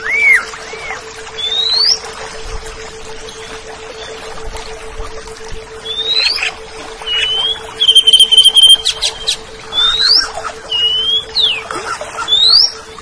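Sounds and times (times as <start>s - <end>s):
bird whistling and trilling: 0.0s - 2.0s, 5.8s - 12.9s
steady low hum: 0.0s - 13.0s.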